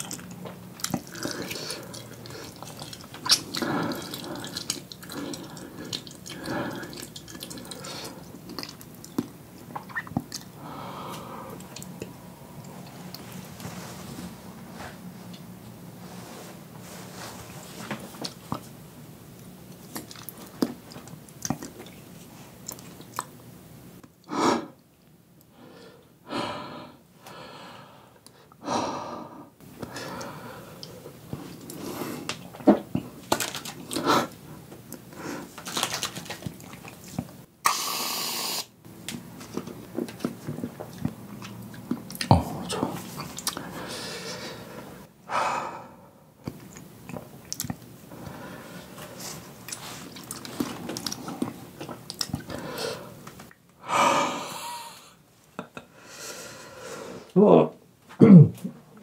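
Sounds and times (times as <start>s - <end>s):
hard breathing and gasping: 3.4s - 8.3s, 25.5s - 32.3s, 42.4s - 46.2s, 53.8s - 55.2s
aerosol can hissing: 37.7s - 38.7s
chewing clicks: 46.4s - 47.9s.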